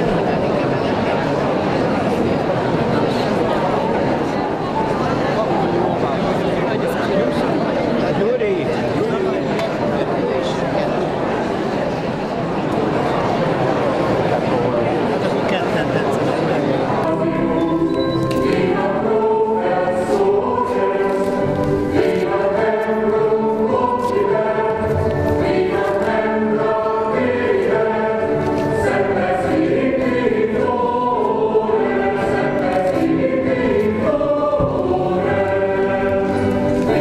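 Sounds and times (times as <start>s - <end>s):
choir singing: 16.4s - 37.0s.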